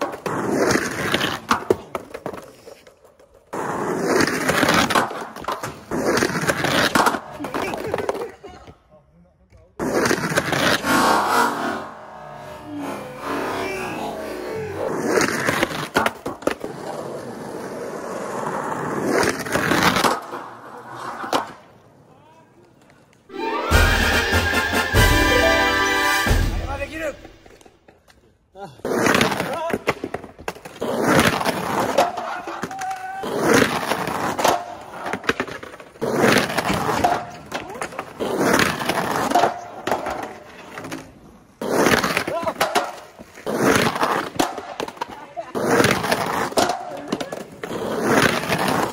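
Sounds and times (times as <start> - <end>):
skateboard trucks grinding curb: 0.0 - 8.4, 9.8 - 22.0, 28.8 - 48.9
skateboard wheels rolling: 0.0 - 8.8, 9.7 - 23.9, 27.2 - 48.9
skateboard clattering down: 29.0 - 48.9.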